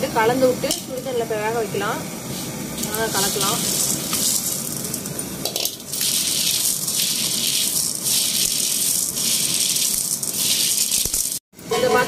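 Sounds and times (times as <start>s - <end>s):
dry pasta rattling in metal bowl: 2.8s - 11.4s.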